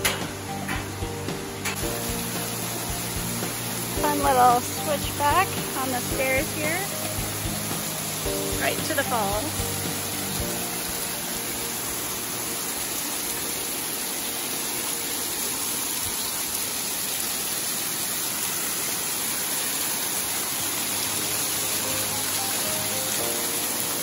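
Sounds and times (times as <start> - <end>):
small waterfall splashing on rocks: 0.0 - 24.0.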